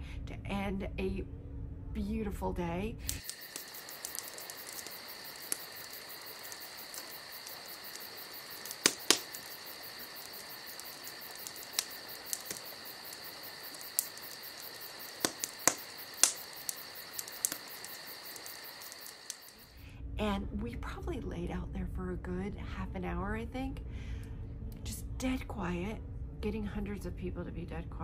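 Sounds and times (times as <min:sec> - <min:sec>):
sharp clicks: 0:03.1 - 0:19.6
night insects chirping: 0:03.1 - 0:19.8.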